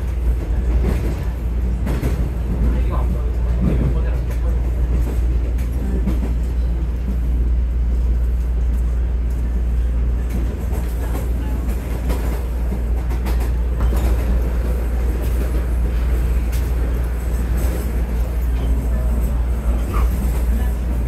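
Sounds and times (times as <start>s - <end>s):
subway train rumbling: 0.0s - 21.0s
sharp clicks from rails: 10.2s - 18.7s.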